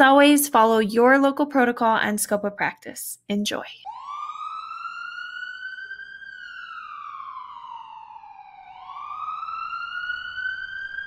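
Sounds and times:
emergency vehicle siren wailing: 3.8 - 11.0.

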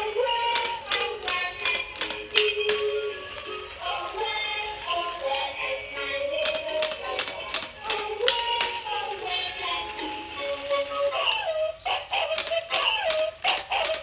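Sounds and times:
sharp clicks: 0.3 - 3.5, 6.4 - 9.3, 12.2 - 14.0
electronic toy tune: 0.4 - 14.0.

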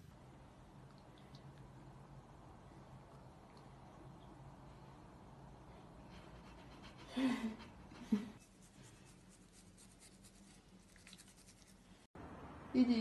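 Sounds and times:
toothbrush bristles scrubbing: 8.4 - 12.1.

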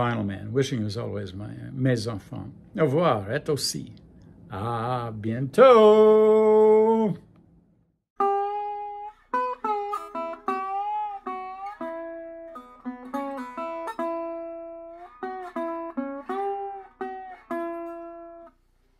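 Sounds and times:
solo guitar plucked notes: 8.2 - 18.6.

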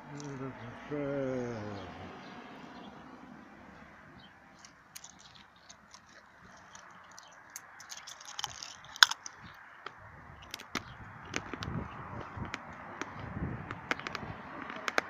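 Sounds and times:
wet mouth clicks and lip smacks: 4.6 - 9.4.

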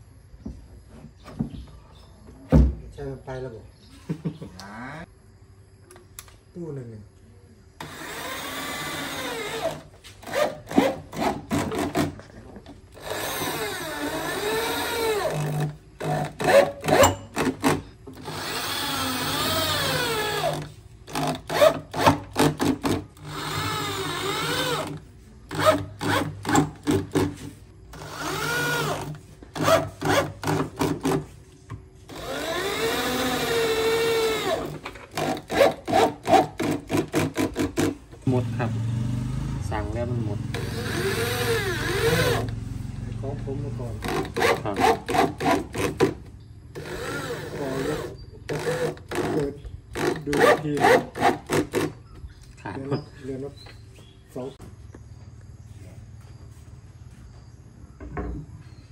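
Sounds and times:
cordless drill whining: 7.8 - 12.0, 12.9 - 26.9, 27.9 - 30.8, 32.1 - 37.6, 40.5 - 42.6, 46.7 - 51.9.

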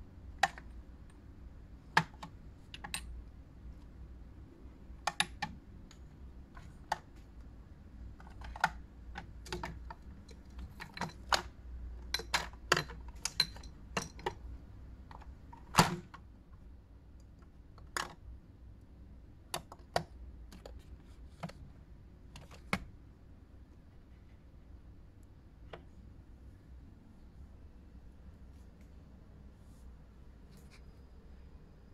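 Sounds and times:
bottles and jars clicking on shelf: 8.2 - 14.5.

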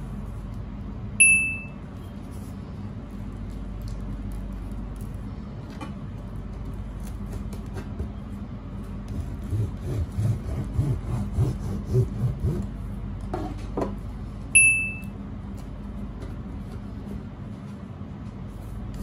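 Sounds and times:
steady low hum: 0.0 - 19.0
bread knife sawing through crust: 9.1 - 12.8.

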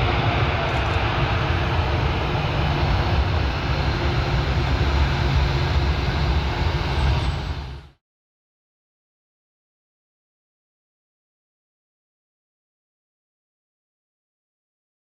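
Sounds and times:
jet engines roaring: 0.0 - 8.0.

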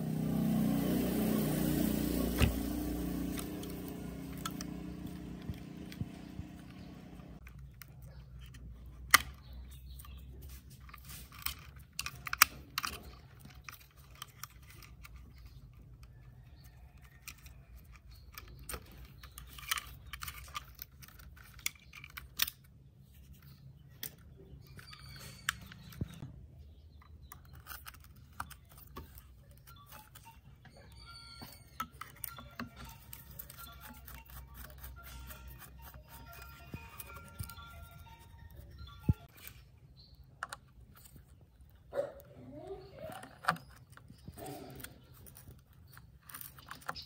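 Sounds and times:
plastic connectors clicking and rattling: 7.4 - 26.2, 27.0 - 30.9, 31.6 - 41.8, 42.8 - 47.0.

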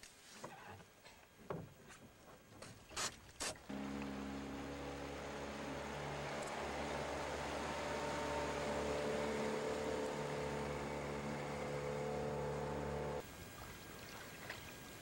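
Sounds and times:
outboard motor running: 3.7 - 13.7.

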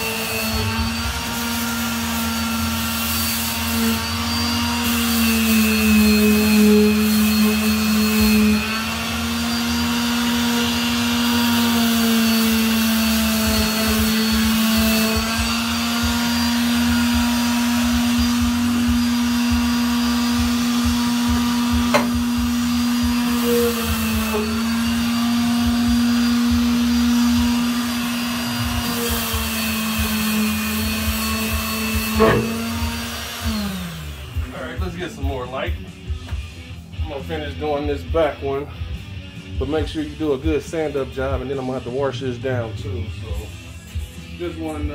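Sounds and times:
electric sander on metal: 0.0 - 34.9.

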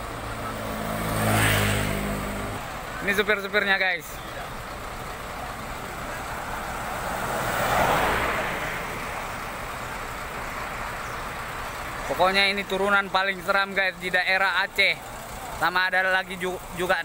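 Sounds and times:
vehicle passing by: 0.0 - 3.2, 4.5 - 12.1.

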